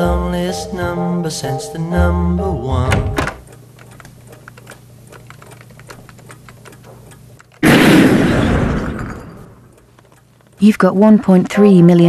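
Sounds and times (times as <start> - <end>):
faint irregular ticking: 0.0 - 7.6, 9.6 - 12.0
low steady hum: 0.0 - 7.6
sudden loud burst of noise: 7.6 - 9.4.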